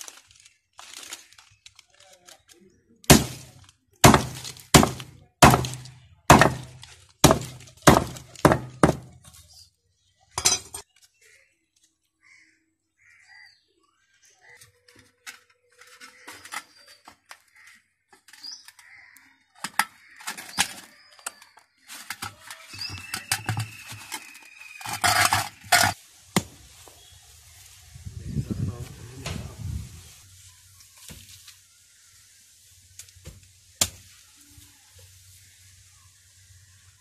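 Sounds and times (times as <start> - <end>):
loud sharp crashing knocks: 3.1 - 9.2.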